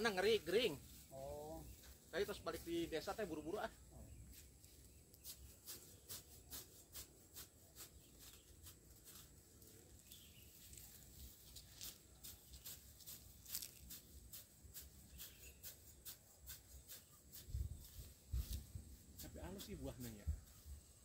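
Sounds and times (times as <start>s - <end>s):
plastic crinkling and rustling: 8.3s - 14.0s.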